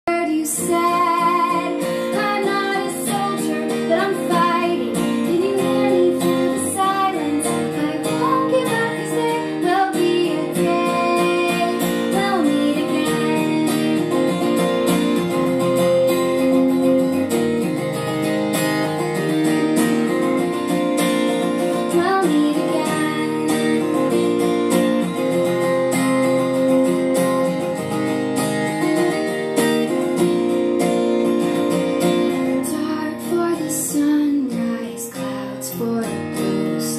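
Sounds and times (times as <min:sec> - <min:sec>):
woman singing: 0:00.1 - 0:15.7, 0:21.3 - 0:24.4, 0:32.0 - 0:36.9
strummed acoustic guitar: 0:00.1 - 0:36.9.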